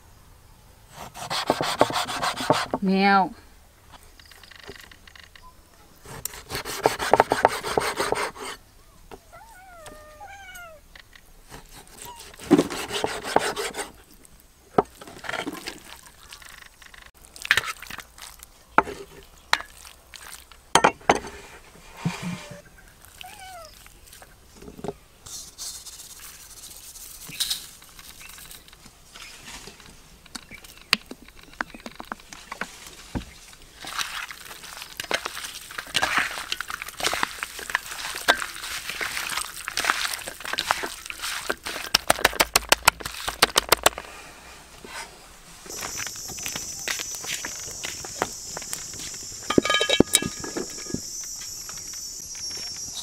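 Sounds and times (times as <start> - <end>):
knocks and scrapes of handling: 3.9 - 8.6, 11.0 - 14.1, 14.7 - 22.7, 24.1 - 52.8
cat meow: 9.2 - 10.8, 23.2 - 23.8.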